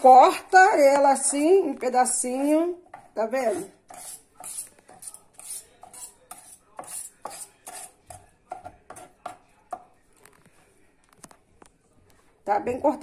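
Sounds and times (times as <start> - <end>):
knife tapping cutting board: 3.9 - 9.9.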